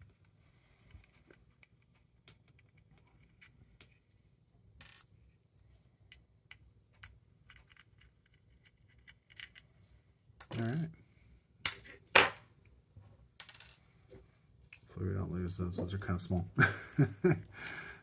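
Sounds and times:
faint clicks and taps of small parts: 0.0s - 4.0s, 5.0s - 9.7s.

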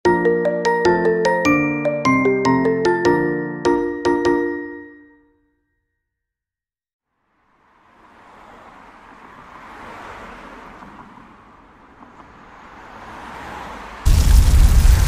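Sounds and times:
cars passing on a street: 7.0s - 15.0s.

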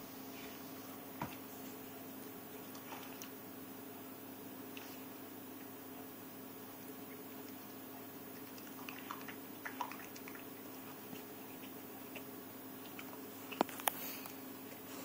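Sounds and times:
steady low hum: 0.0s - 15.0s
dog chewing wetly: 6.7s - 14.9s.

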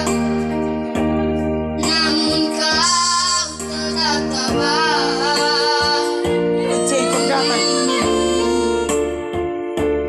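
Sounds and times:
electronic keyboard chords: 0.0s - 10.0s
boys singing into a microphone: 1.8s - 8.7s.

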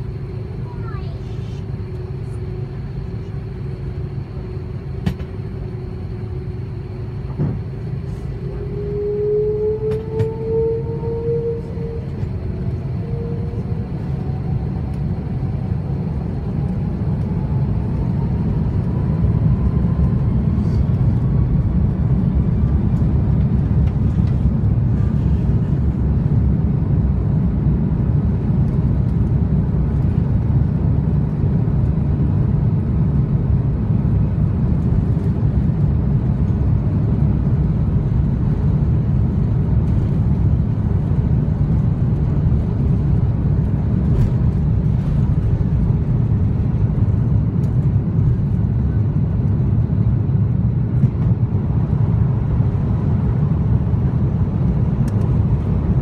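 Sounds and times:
low rumble of takeoff roll: 0.0s - 56.0s
jet engines spooling up: 6.8s - 27.3s.

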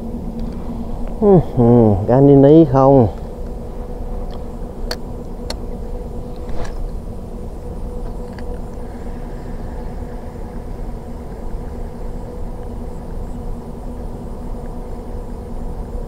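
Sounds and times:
constant hum: 0.0s - 16.0s
low rumble: 3.6s - 13.9s.

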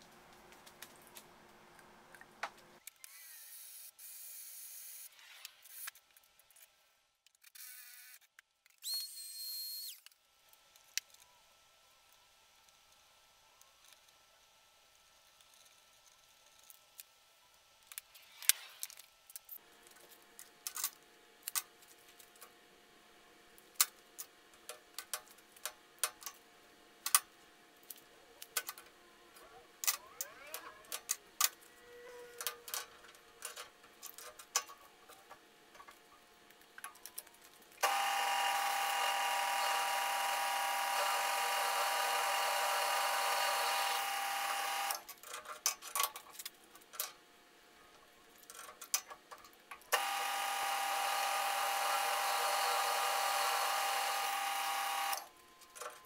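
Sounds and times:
drill press grinding whine: 37.8s - 45.0s, 50.0s - 55.3s.

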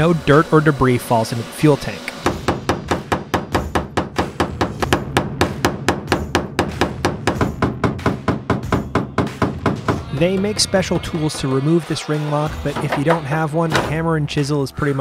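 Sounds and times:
hammer striking metal chisel: 12.6s - 14.0s.

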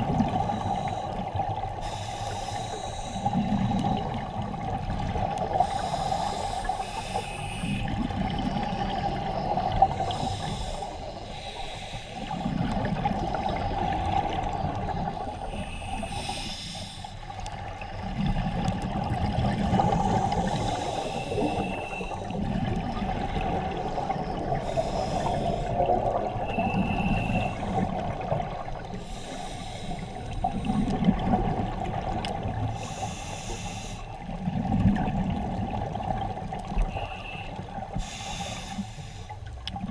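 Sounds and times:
exhale bubbling rumble: 0.0s - 1.8s, 3.1s - 6.4s, 7.6s - 11.1s, 12.2s - 16.3s, 17.3s - 29.3s, 29.9s - 32.8s, 34.1s - 38.0s, 39.7s - 39.9s
steady underwater hiss: 0.0s - 39.9s
regulator inhale hiss: 0.2s - 4.3s, 5.5s - 8.0s, 9.8s - 17.6s, 19.7s - 22.3s, 24.0s - 28.0s, 28.8s - 31.2s, 32.6s - 34.3s, 36.8s - 39.6s.

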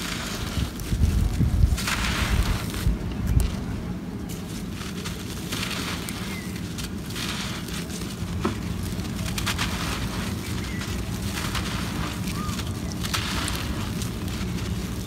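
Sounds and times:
dirt crumbling and crackling: 0.0s - 15.0s
grains trickling and pattering: 4.2s - 15.0s.

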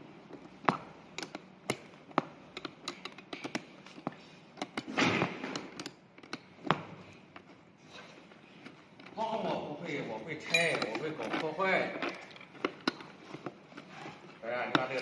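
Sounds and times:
wrench metal clicks and clinks: 2.6s - 3.6s, 10.4s - 13.0s.

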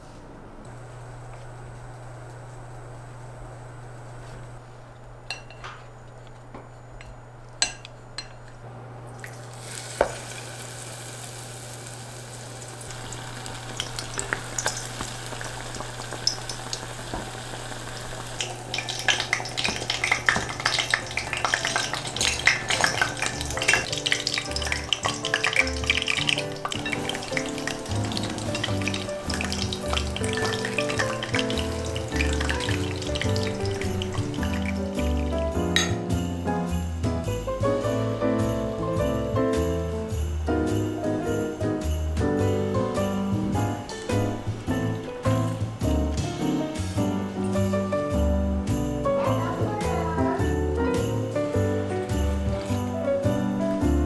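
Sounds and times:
vegetables deep-frying in oil: 9.1s - 35.9s
soft background music: 18.5s - 54.0s.

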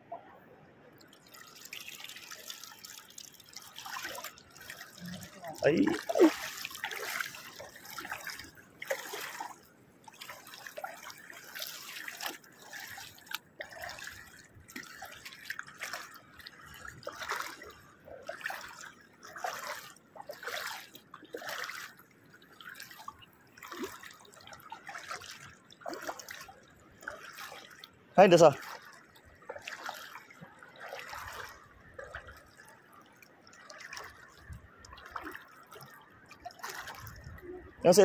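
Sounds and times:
footsteps splashing in water: 1.0s - 37.4s.

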